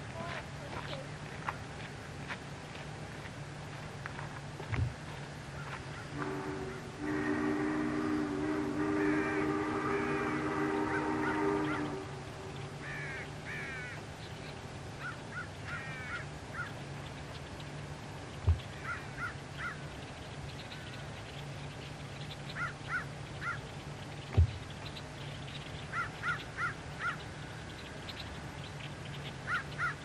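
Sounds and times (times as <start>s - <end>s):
low steady hum: 0.0s - 30.0s
steam whistle: 6.1s - 12.3s.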